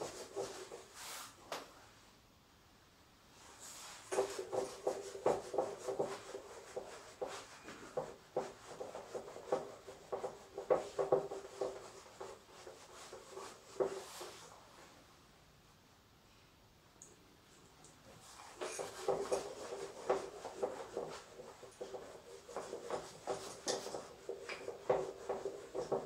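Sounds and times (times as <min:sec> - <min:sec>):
duster rubbing on whiteboard: 0:00.0 - 0:01.4, 0:03.4 - 0:14.5, 0:18.2 - 0:26.0.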